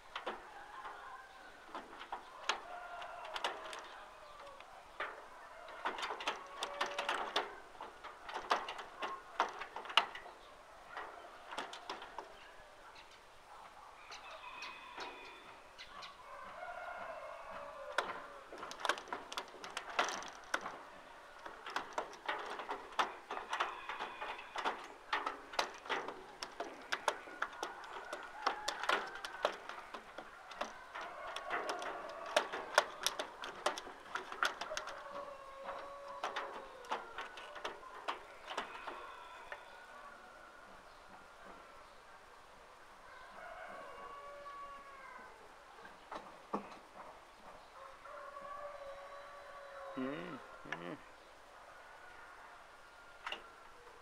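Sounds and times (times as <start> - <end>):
chickens clucking and calling: 10.2 - 41.8
sharp clicks and taps: 21.4 - 35.0.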